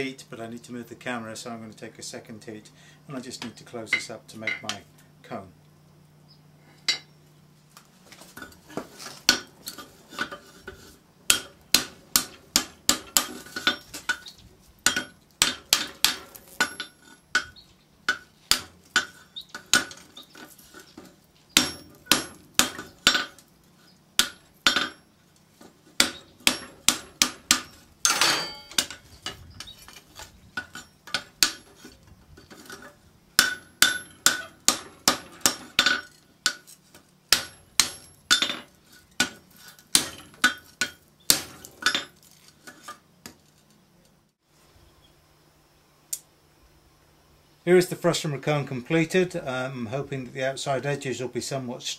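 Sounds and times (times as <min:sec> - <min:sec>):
hammer striking hot steel on anvil: 0:11.3 - 0:20.0, 0:21.6 - 0:23.4, 0:24.2 - 0:25.0, 0:26.0 - 0:29.0, 0:30.6 - 0:31.8, 0:33.4 - 0:36.7, 0:37.3 - 0:42.1.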